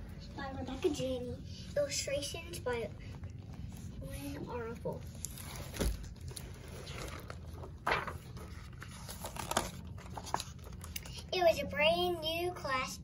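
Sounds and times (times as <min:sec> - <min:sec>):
book pages turning: 0:02.6 - 0:11.3.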